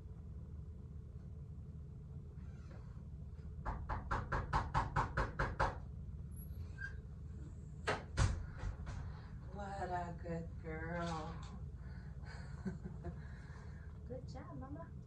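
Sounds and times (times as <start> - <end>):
rapid knocking on wooden door: 3.6 - 5.8.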